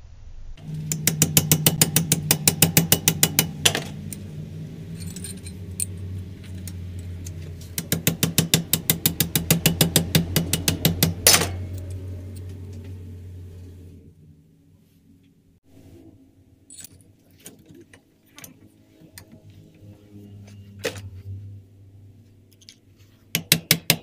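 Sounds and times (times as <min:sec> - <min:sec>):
low steady hum: 0:00.0 - 0:23.3
rapid metallic clicking: 0:00.6 - 0:12.6.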